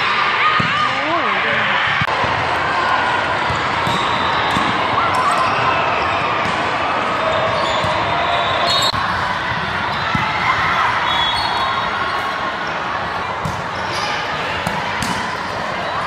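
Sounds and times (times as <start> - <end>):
voices in large gym: 0.0 - 16.0
sneaker squeaks: 7.3 - 9.0, 9.9 - 15.2.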